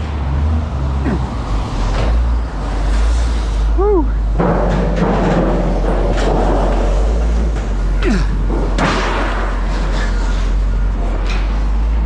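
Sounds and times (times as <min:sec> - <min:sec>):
sheet metal crashing: 0:04.4 - 0:10.4.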